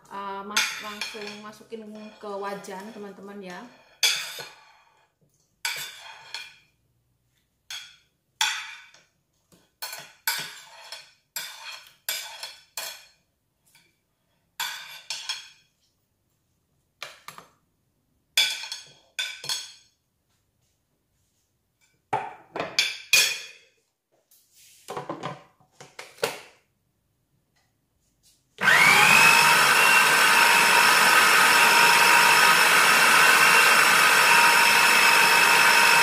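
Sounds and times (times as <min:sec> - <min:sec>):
metal spoon clinking on ceramic plate: 0:04.0 - 0:04.4, 0:18.4 - 0:19.8.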